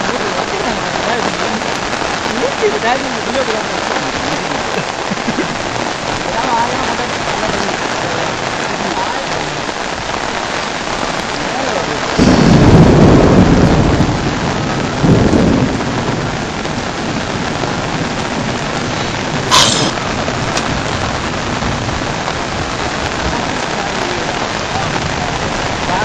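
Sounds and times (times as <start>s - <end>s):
heavy rain hissing: 0.0s - 26.0s
deep thunder rumble: 10.0s - 26.0s.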